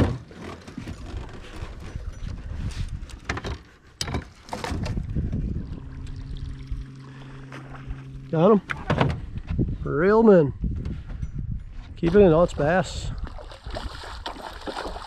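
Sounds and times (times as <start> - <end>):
electric motor humming: 4.6 - 9.8.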